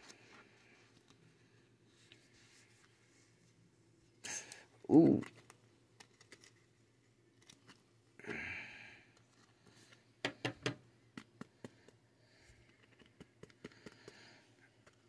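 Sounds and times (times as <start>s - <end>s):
cards clicking in plastic sleeves: 4.5s - 6.7s, 10.2s - 12.0s, 12.6s - 15.0s
person breathing out: 8.2s - 9.1s.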